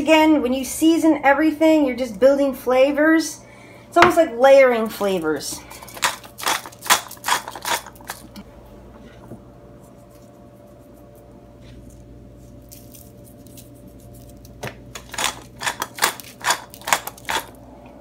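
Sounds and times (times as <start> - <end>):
steady low hum: 0.0 - 18.0
pepper grinder clicking: 5.8 - 8.4, 14.9 - 17.6.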